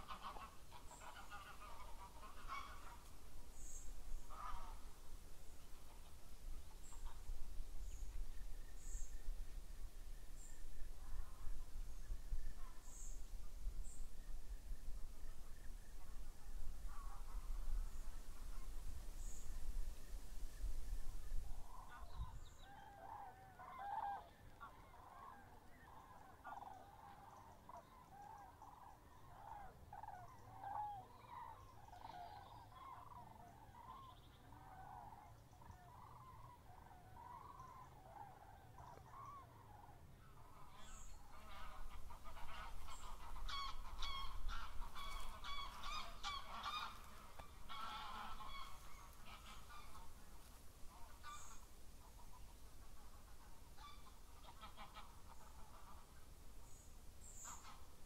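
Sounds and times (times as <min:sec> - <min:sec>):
birds honking in chorus: 0:00.0 - 0:05.0, 0:21.6 - 0:52.4, 0:53.0 - 0:57.9.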